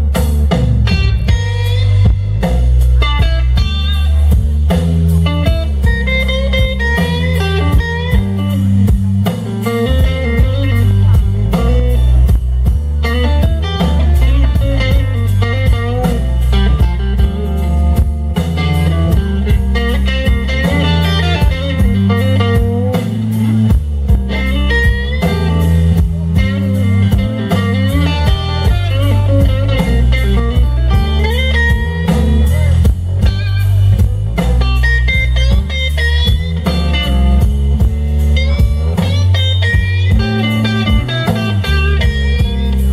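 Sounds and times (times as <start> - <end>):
bass guitar: 0.0 - 42.9
drums: 0.0 - 42.9
lead electric guitar bending notes: 0.0 - 42.9.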